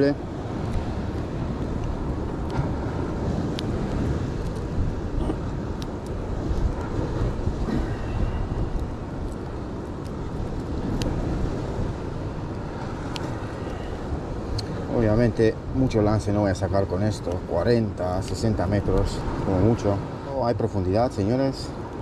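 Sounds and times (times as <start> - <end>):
wind and sea rumbling: 0.0 - 22.0
faint ticks and clicks: 4.4 - 4.7, 8.7 - 11.2, 12.4 - 13.9.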